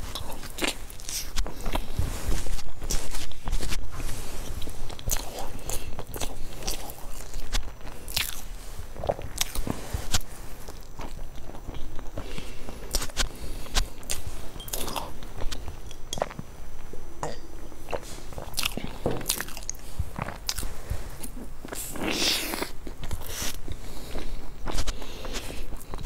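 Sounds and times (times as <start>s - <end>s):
crunchy pastry chewing: 0.0s - 16.4s, 17.8s - 26.0s.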